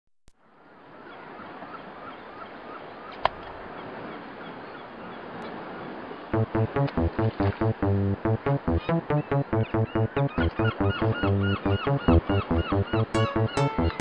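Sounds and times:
electronic music with heavy beat: 6.4 - 14.0.

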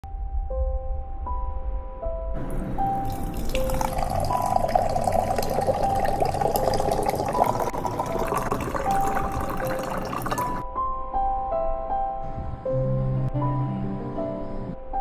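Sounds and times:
background music sustained notes: 0.1 - 15.0
water pouring into a glass: 2.5 - 10.6.

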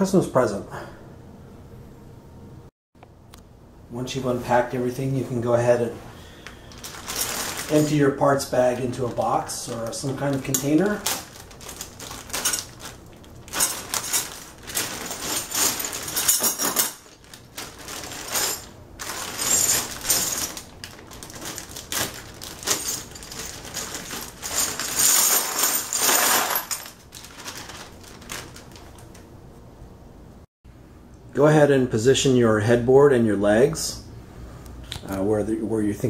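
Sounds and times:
plastic bag crinkling: 6.4 - 29.2.

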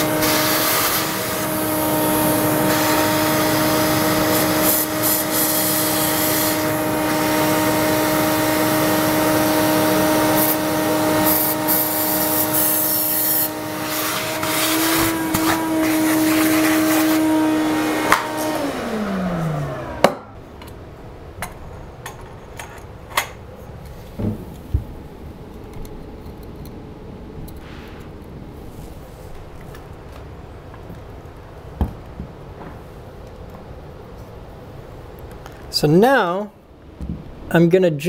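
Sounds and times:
vacuum motor whine: 0.0 - 20.5.

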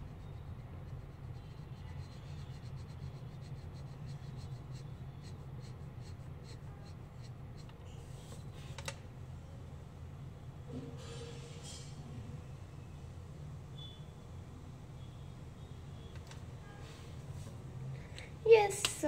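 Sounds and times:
marker scratching on paper: 0.0 - 8.8
steady low hum: 0.0 - 11.0.

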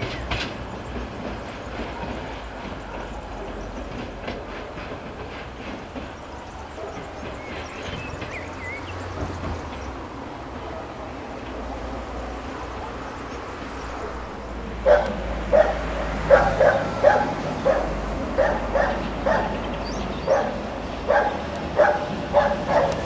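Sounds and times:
low rumble of train: 0.0 - 23.0
dog barking: 6.7 - 7.3, 10.6 - 11.2, 13.9 - 23.0.

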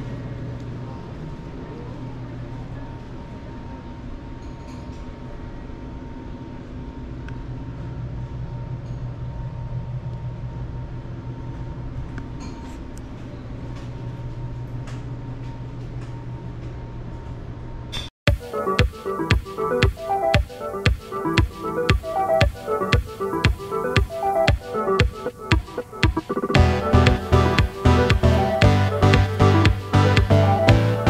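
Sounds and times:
low mechanical rumble and hum: 0.0 - 18.0.

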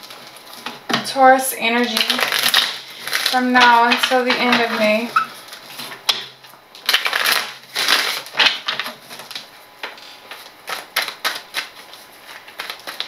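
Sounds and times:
cards being shuffled: 6.8 - 13.0.

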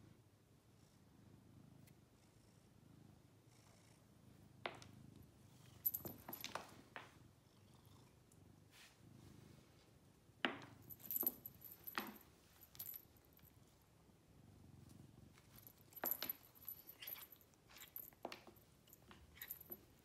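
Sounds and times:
light metallic jingling: 5.7 - 6.8, 10.6 - 13.6, 15.4 - 20.0.

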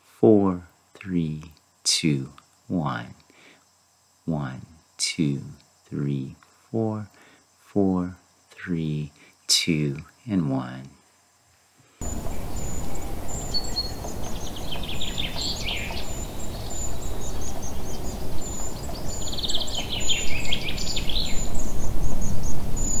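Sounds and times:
insects chirping: 0.0 - 23.0
steady outdoor noise: 0.0 - 23.0
bird singing rapid notes: 12.0 - 23.0.

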